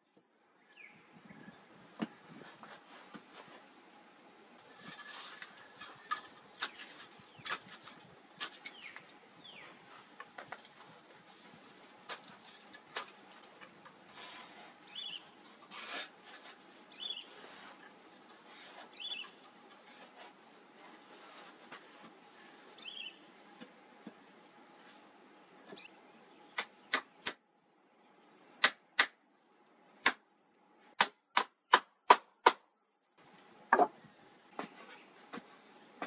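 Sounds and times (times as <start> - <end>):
high insect trill: 0.6 - 30.9
bird chirps: 14.9 - 15.4, 16.9 - 17.4, 18.9 - 19.4, 22.8 - 23.2.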